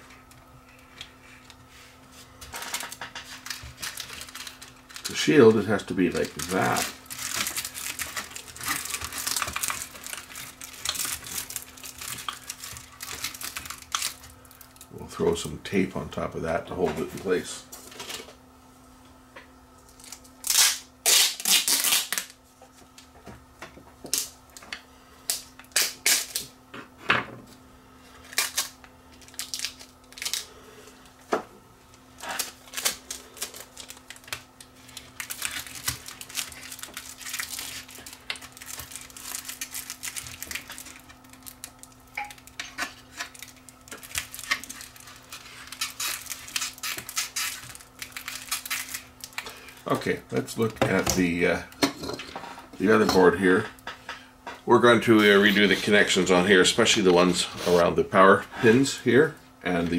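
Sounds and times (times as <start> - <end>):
adhesive tape crackling and rustling: 2.4 - 15.0, 19.8 - 23.1, 25.3 - 26.5, 28.2 - 31.2, 31.9 - 51.3.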